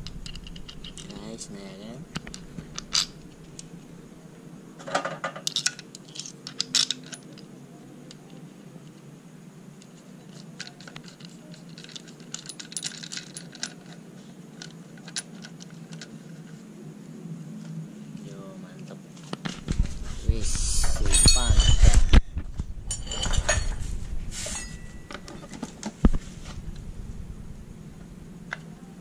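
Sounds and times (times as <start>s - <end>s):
steady low hum: 0.0s - 29.0s
metal washers clinking: 0.1s - 1.2s, 2.2s - 3.6s, 4.8s - 7.5s, 10.2s - 14.0s, 20.8s - 22.2s, 22.9s - 25.8s.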